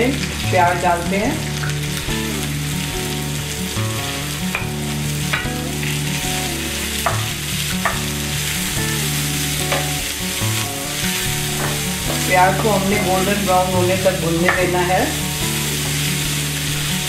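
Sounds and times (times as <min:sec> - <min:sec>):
onions sizzling in hot oil: 0:00.0 - 0:17.0
spatula scraping pan: 0:03.7 - 0:17.0.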